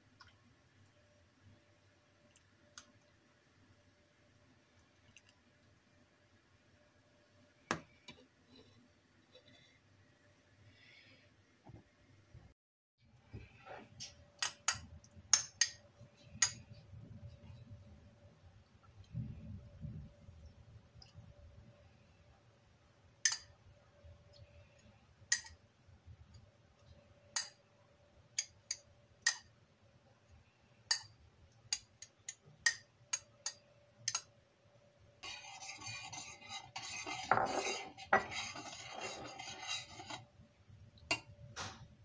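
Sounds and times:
faint steady hum: 0.0 - 42.0
stirring in a metal pot: 35.2 - 40.3.

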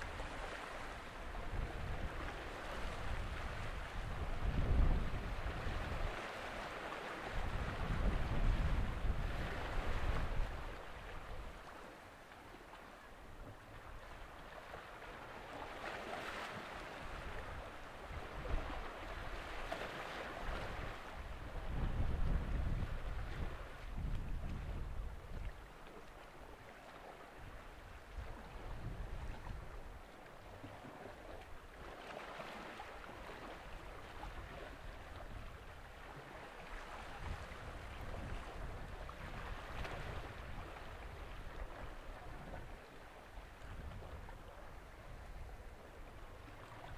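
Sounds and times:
wind buffeting microphone: 0.0 - 6.2, 7.3 - 11.6, 20.4 - 25.6, 27.4 - 30.0, 36.7 - 42.9, 43.5 - 46.9
water washing against shore: 0.0 - 12.7, 14.3 - 46.9.

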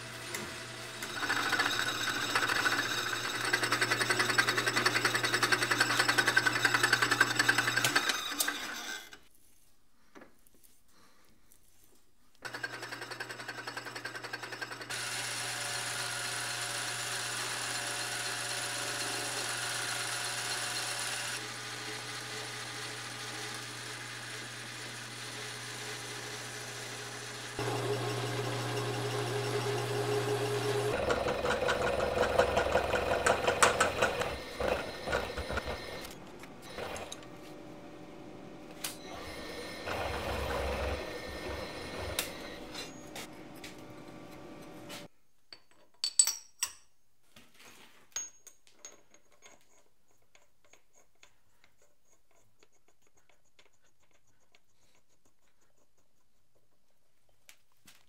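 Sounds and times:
metal lathe humming: 0.0 - 8.9, 14.9 - 45.1
metal cutting chatter: 27.6 - 37.2.

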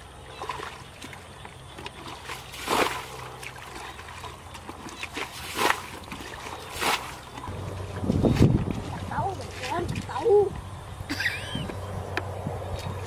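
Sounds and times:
water splashing from bucket: 0.0 - 10.4
water sloshing and trickling: 0.0 - 13.0.

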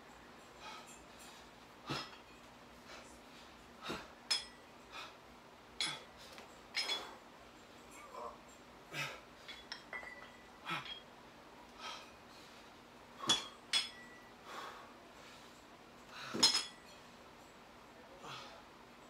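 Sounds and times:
dumbbell plates clinking: 0.4 - 3.0, 3.9 - 4.9, 5.7 - 11.2, 13.2 - 14.4, 15.5 - 17.6
heavy breathing: 4.8 - 7.3, 14.4 - 16.4.

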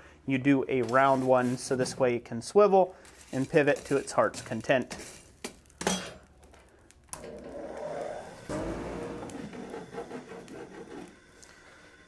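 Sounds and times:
forge blower running: 8.2 - 12.0.

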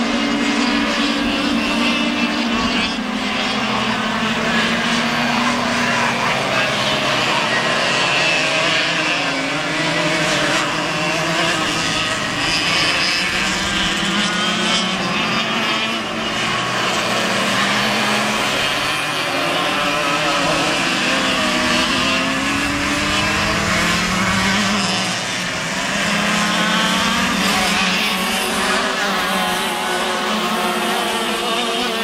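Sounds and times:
racing kart engines: 0.0 - 32.0.

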